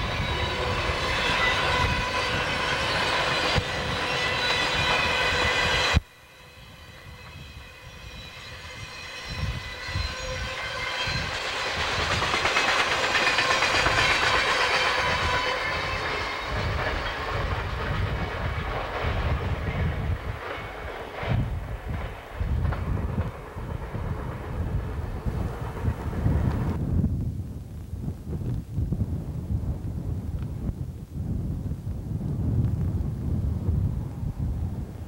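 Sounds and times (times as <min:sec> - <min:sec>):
train wheels rumbling and clicking: 0:00.0 - 0:06.1, 0:06.9 - 0:26.8.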